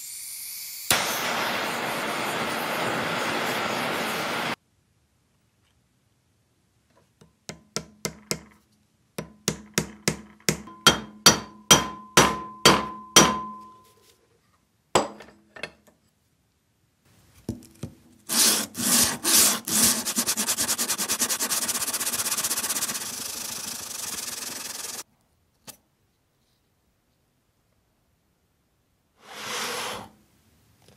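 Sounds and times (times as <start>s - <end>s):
hammer tapping on metal: 7.2s - 8.6s, 9.2s - 13.7s
metal rubbing on abrasive paper: 18.3s - 25.0s.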